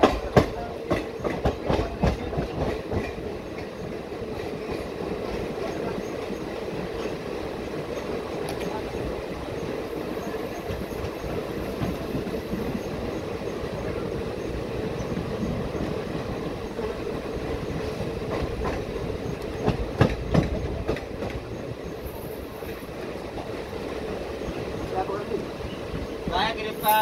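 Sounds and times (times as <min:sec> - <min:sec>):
train wheels rumbling on track: 0:00.0 - 0:27.0
wheels clanking over rail joints: 0:17.6 - 0:27.0.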